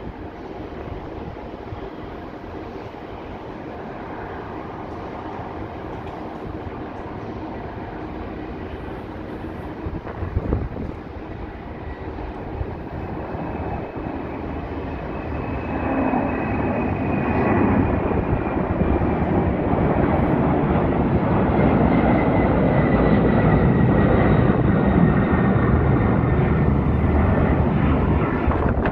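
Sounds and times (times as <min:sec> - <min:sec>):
jet engine roar: 0:00.0 - 0:28.9.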